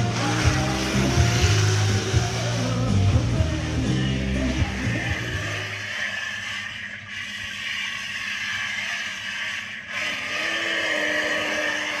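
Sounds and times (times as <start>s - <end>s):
boat motor running: 0.0s - 5.8s
steady motor whine: 0.0s - 7.6s.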